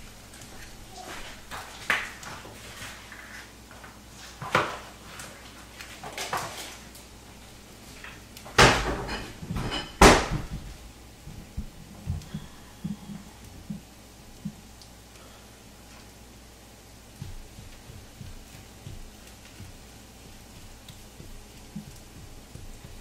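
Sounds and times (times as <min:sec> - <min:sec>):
kitchen clatter: 0:00.9 - 0:07.0, 0:08.0 - 0:10.8.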